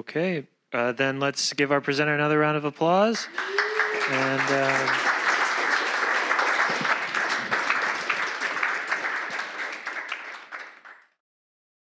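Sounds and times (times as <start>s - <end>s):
audience applauding: 3.1s - 11.2s.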